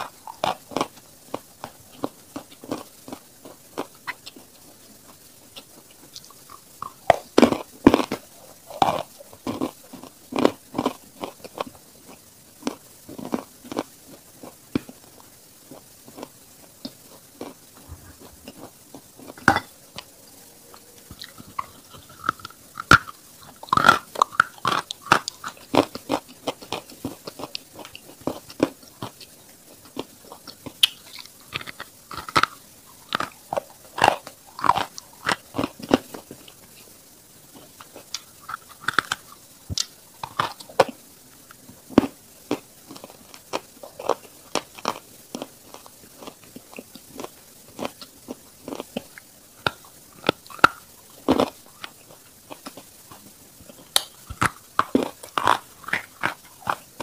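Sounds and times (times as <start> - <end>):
crunching chalk chewing: 0.0 - 4.5, 15.7 - 36.9, 37.5 - 57.0.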